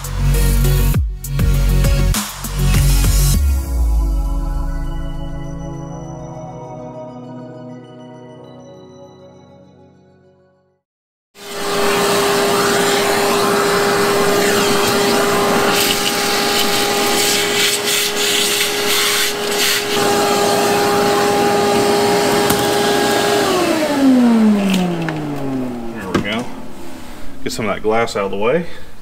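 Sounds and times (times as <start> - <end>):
vacuum motor winding down: 11.4 - 27.0
vacuum cleaner humming: 11.4 - 27.3.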